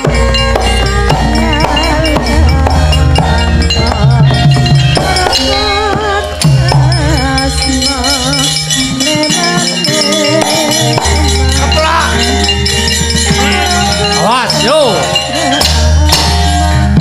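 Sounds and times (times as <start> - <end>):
deep steady bass: 0.0 - 9.0
drums: 0.0 - 17.0
struck bronze metallophones: 0.0 - 17.0
wavering melody with vibrato: 0.0 - 17.0.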